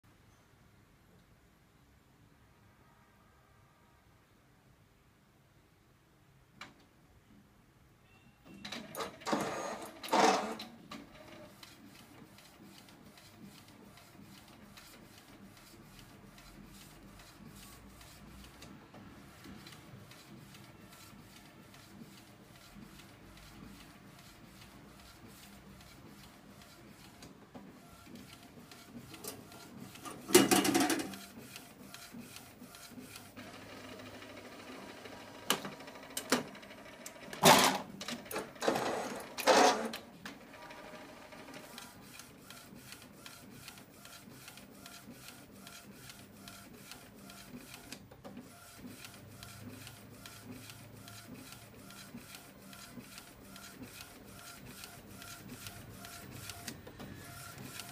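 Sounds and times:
printer mechanical clatters and whirs: 8.5s - 57.9s
printer carriage ticking: 19.4s - 57.9s.

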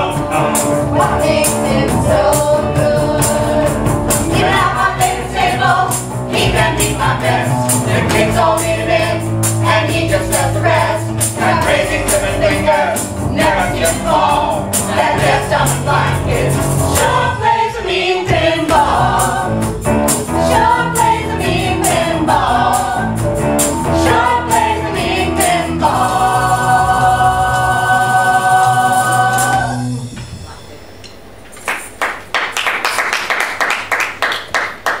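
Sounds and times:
group of singers: 0.0s - 30.1s
live rock band: 0.0s - 30.5s
audience applause: 31.6s - 35.0s.

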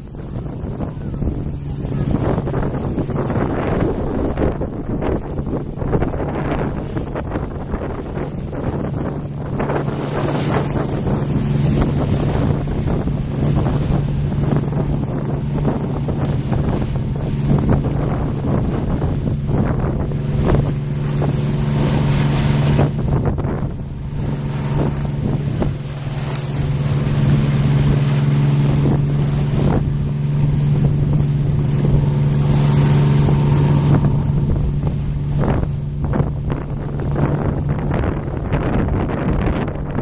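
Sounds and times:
boat engine humming: 0.0s - 40.0s
waves washing against stone: 0.0s - 40.0s
wind on microphone: 0.0s - 40.0s.

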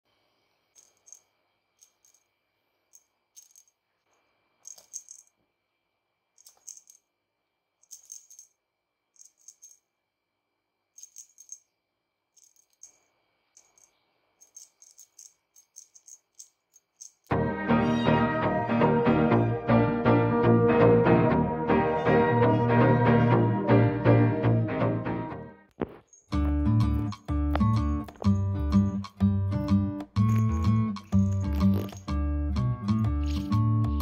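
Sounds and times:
small jingle bell rattling: 0.7s - 3.8s, 4.6s - 5.4s, 6.4s - 7.2s, 7.8s - 10.0s, 10.9s - 17.3s, 30.2s - 32.2s.

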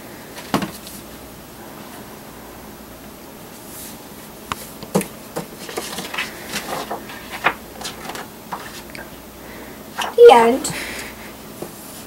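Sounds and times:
paper pages rustling: 4.9s - 9.0s, 9.9s - 10.2s.

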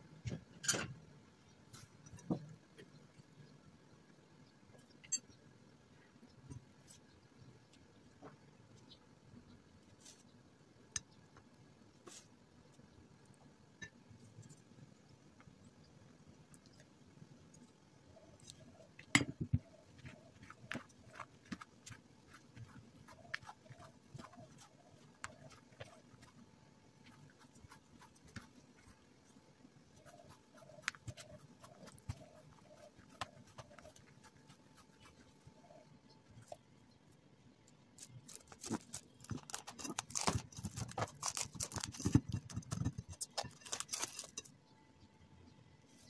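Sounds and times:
dough being kneaded: 18.2s - 35.8s, 38.0s - 44.4s
plastic wrap crinkling: 38.0s - 44.4s.

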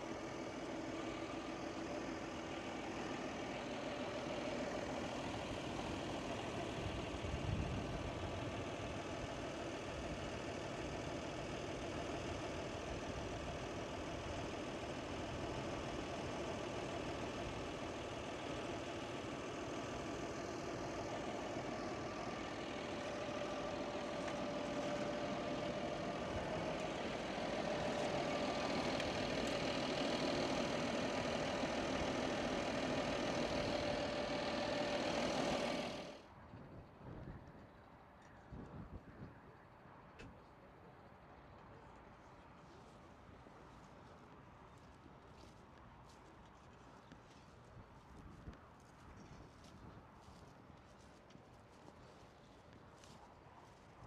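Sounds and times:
tractor diesel engine idling: 0.0s - 36.4s, 51.0s - 54.0s.

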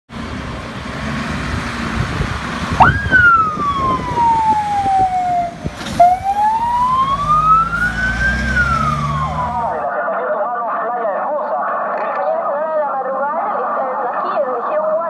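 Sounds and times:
steady rumble: 0.1s - 9.9s
fire engine siren wailing: 1.4s - 10.0s.

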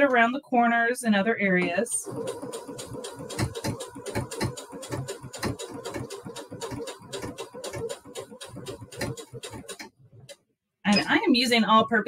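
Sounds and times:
sewing machine running: 1.8s - 10.4s.

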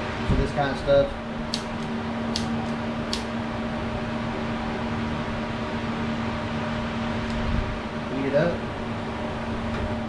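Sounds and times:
steady machine hum: 0.0s - 10.0s
torch lighter clicking: 1.5s - 3.3s.

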